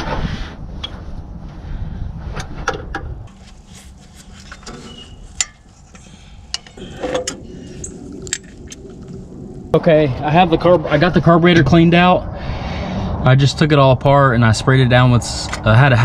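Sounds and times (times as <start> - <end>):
low rumble: 0.0 - 3.4, 6.2 - 16.0
tools and metal parts clinking: 4.2 - 8.7.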